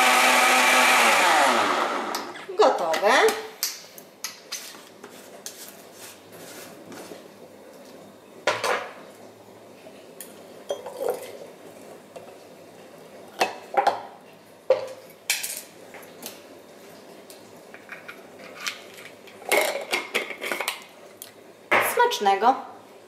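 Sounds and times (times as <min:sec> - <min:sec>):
jug and glass clinking: 0:10.7 - 0:11.4.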